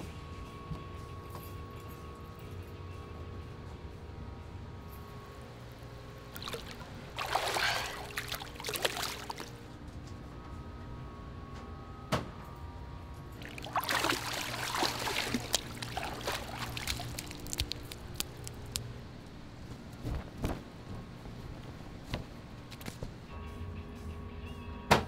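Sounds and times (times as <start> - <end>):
faint hum: 0.0 - 24.9
water pouring and trickling: 6.3 - 9.6, 13.4 - 18.8.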